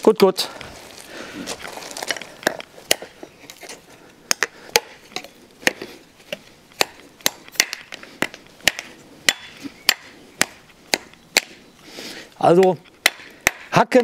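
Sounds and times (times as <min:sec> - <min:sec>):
steel blade chopping wood: 0:02.1 - 0:11.6, 0:12.6 - 0:13.8.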